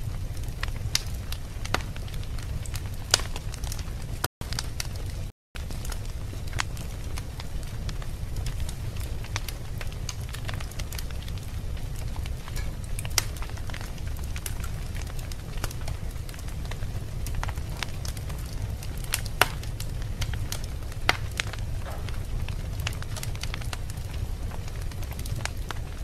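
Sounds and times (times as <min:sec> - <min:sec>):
fire crackling and popping: 0:00.0 - 0:26.0
fire flames rumbling: 0:00.0 - 0:26.0.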